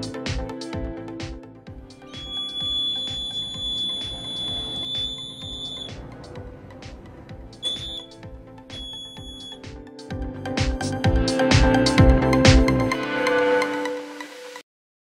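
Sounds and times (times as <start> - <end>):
alarm buzzer high-pitched tone: 2.0 - 6.1, 7.6 - 8.1, 8.7 - 9.6.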